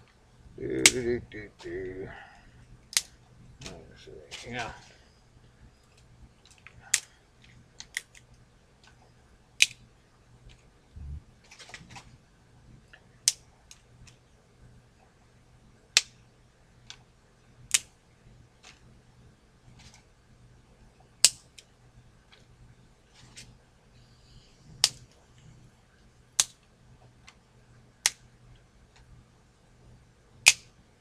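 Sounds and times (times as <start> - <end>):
dry wood snapping: 0.0 - 5.0, 5.9 - 9.0, 9.6 - 10.7, 12.9 - 14.2, 15.9 - 16.2, 17.7 - 18.0, 21.2 - 21.7, 24.8 - 25.2, 26.3 - 27.4, 28.0 - 28.3, 30.4 - 30.7.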